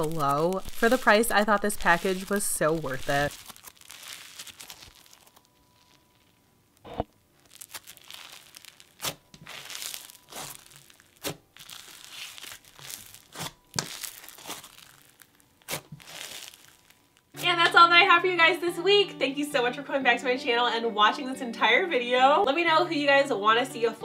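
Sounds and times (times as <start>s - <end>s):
slime squished by hand: 0.0s - 5.9s, 7.5s - 17.0s
foam beads crunching and crackling: 0.0s - 6.4s, 7.3s - 17.4s.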